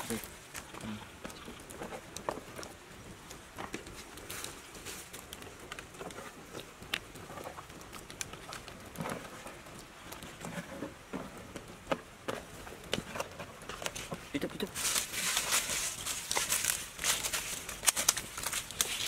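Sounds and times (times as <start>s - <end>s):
wood fire crackling: 0.0s - 19.0s
dry leaves rustling underfoot: 13.8s - 19.0s.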